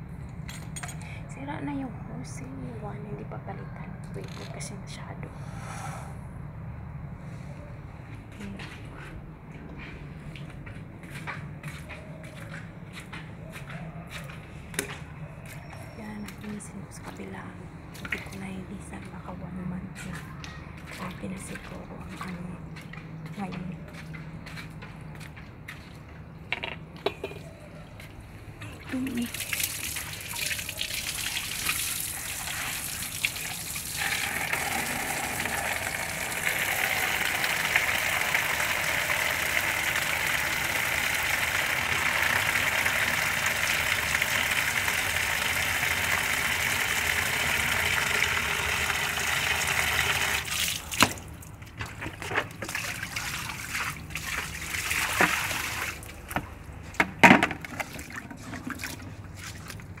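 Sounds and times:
water dripping and trickling: 28.6s - 56.5s
water spraying from a hose: 29.0s - 51.4s, 52.6s - 56.1s.

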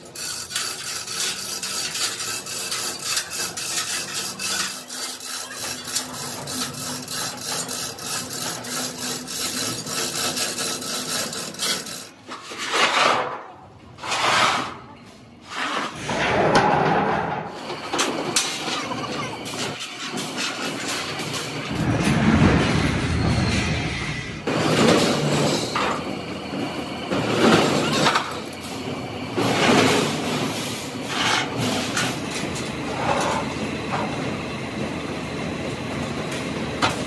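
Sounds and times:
tool scraping metal: 0.0s - 13.4s, 14.0s - 14.8s, 15.4s - 26.0s, 29.4s - 34.0s
loud rushing swells: 21.7s - 24.5s.

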